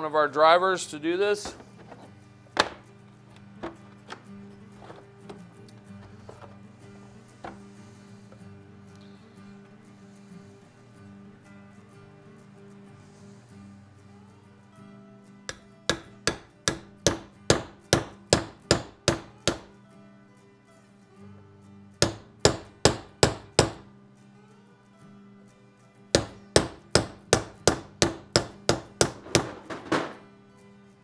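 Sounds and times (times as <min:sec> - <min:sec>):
hammer tapping seal driver: 0:15.5 - 0:19.7, 0:22.0 - 0:23.8, 0:26.2 - 0:29.5.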